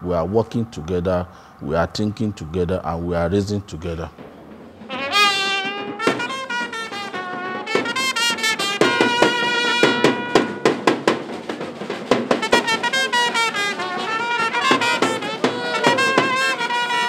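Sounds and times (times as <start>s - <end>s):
street band trumpets and drums: 2.0s - 17.0s
sharp drum strikes: 3.7s - 17.0s.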